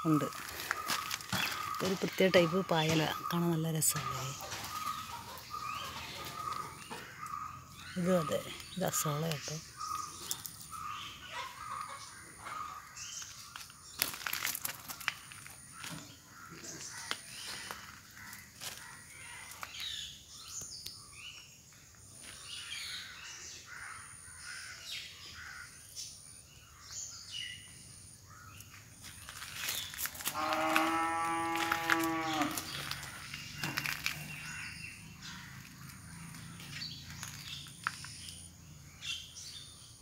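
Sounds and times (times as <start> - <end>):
birds chirping and calling: 0.0 - 40.0.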